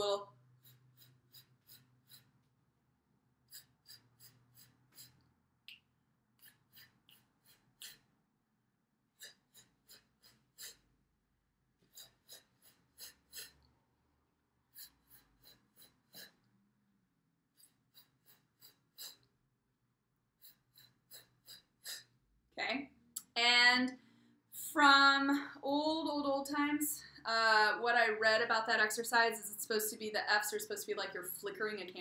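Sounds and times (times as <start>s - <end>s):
pulsed breath puffs: 9.2s - 10.9s, 11.8s - 13.7s, 14.7s - 16.5s, 17.6s - 19.3s, 20.4s - 22.2s.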